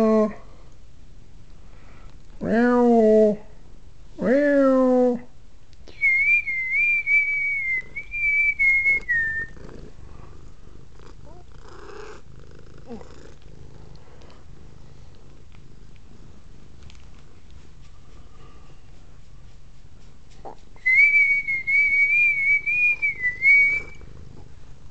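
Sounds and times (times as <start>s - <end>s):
person whistling: 5.9s - 9.6s, 20.8s - 24.0s
cat purring: 6.5s - 24.9s.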